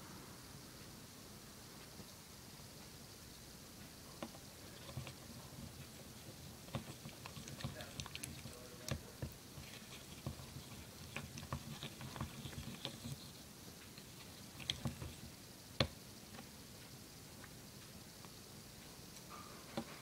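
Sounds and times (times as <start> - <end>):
stick stirring wet glue: 4.0 - 17.6.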